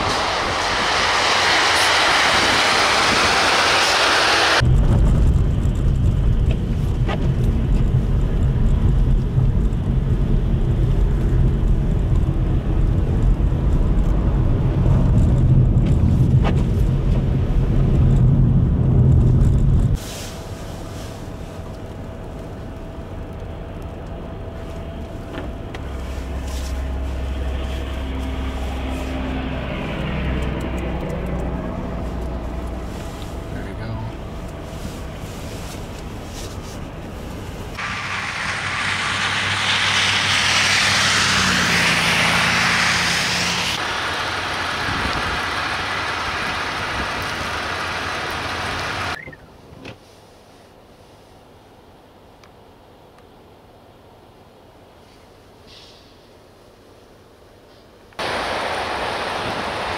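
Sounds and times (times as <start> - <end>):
truck tyres hissing on snow: 0.0 - 4.9, 19.9 - 23.2, 24.6 - 29.8, 31.6 - 49.2, 55.0 - 59.9
low hum of stopped traffic: 0.0 - 59.9
low rumble inside driving vehicle: 0.0 - 59.9.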